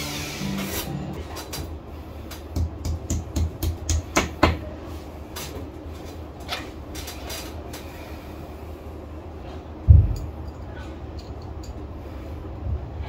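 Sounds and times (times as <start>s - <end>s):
low steady hum: 0.0s - 13.0s
light clicks and knocks of tools: 10.1s - 11.9s.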